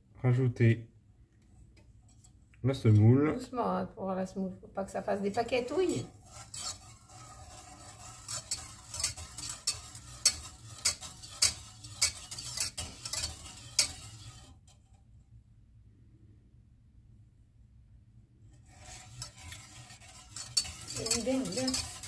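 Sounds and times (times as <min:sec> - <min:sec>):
whisk clicking against saucepan: 0:06.2 - 0:14.6, 0:18.7 - 0:22.0.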